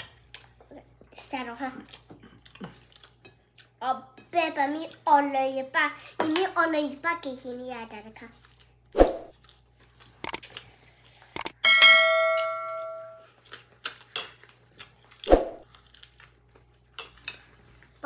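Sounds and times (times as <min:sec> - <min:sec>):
quick clicks: 0:10.2 - 0:10.4, 0:11.4 - 0:11.6
notification bell ding: 0:11.6 - 0:13.2.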